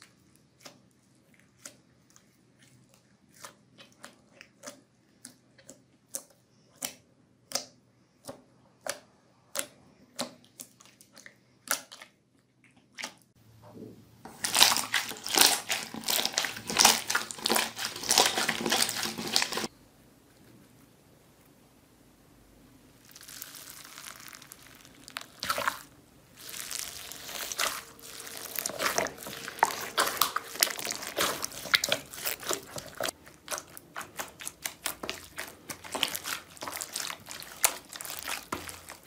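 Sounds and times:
slime crackling and squishing: 14.3s - 19.7s, 23.0s - 39.0s.

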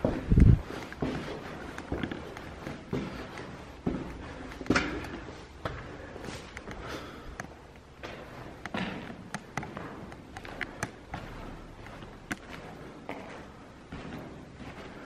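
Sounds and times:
sharp clicks and knocks: 0.3s - 5.3s, 6.5s - 12.7s
footsteps crunching on gritty stone: 8.0s - 15.0s.

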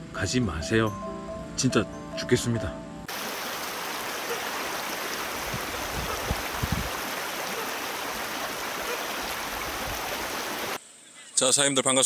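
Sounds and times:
stream running: 3.1s - 10.8s.

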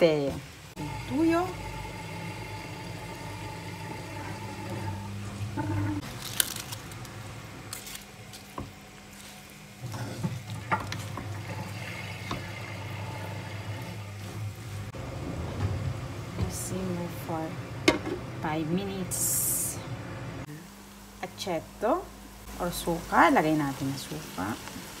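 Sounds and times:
wooden spatula stirring and scraping: 7.8s - 15.8s.

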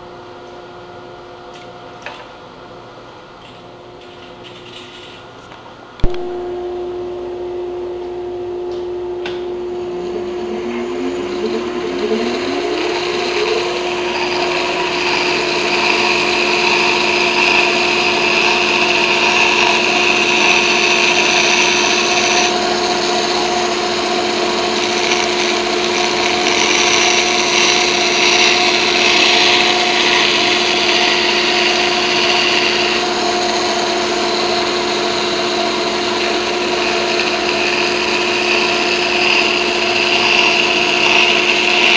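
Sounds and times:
band saw motor hum: 9.1s - 41.9s.

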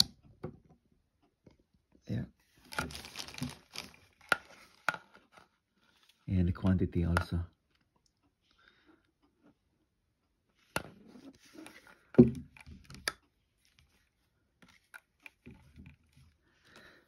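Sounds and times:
rustling: 2.4s - 6.2s.

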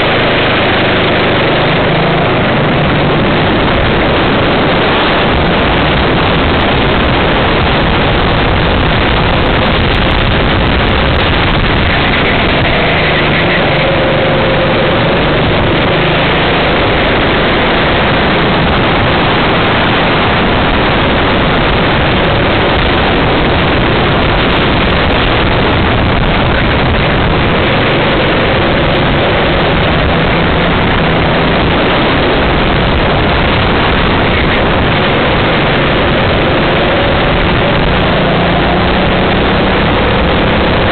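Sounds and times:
kart engine racing: 0.0s - 40.9s
wind rush on microphone: 0.0s - 40.9s.

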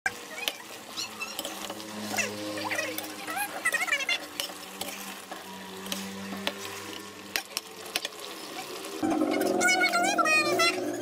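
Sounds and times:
spoon stirring in a pan: 0.2s - 10.0s
voice-like sound: 9.0s - 11.0s.

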